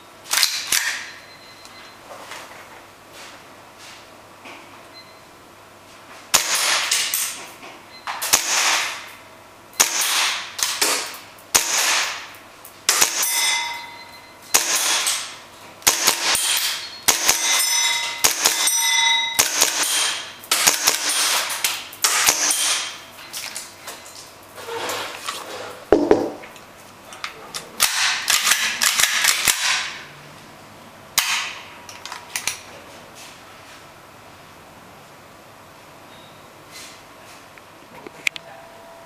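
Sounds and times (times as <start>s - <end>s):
airsoft pistol shots: 6.3s - 7.2s, 8.2s - 9.1s, 9.8s - 12.3s, 12.9s - 13.3s, 14.5s - 18.7s, 19.4s - 23.0s, 27.8s - 30.0s
brief ringing tone: 13.3s - 14.4s.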